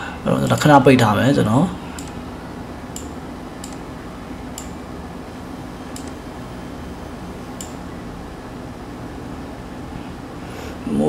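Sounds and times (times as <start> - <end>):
low room hum: 0.0 - 11.0
computer mouse clicking: 2.0 - 2.2, 2.9 - 3.9, 5.9 - 6.2, 7.6 - 7.8.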